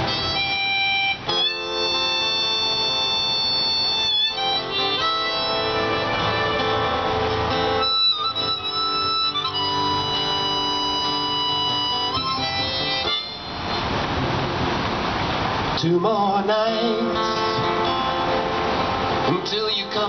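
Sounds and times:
harmonica held notes: 0:00.0 - 0:13.8
acoustic guitar: 0:00.0 - 0:20.0.

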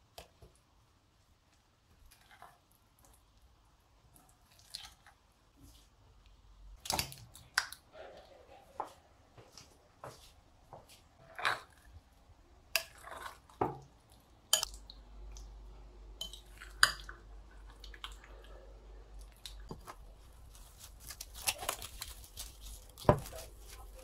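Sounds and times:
cling film crinkling: 0:19.8 - 0:24.0.

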